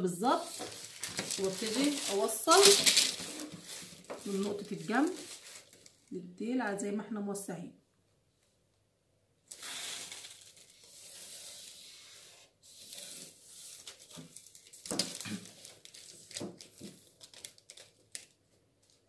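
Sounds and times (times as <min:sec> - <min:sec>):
paper rustling: 0:00.4 - 0:06.1, 0:09.5 - 0:19.0.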